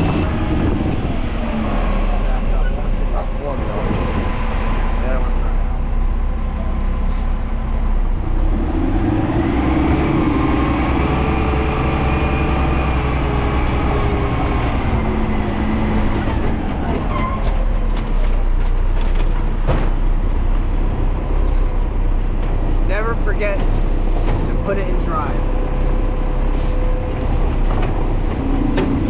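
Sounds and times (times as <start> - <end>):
garbage truck engine: 0.0 - 29.0.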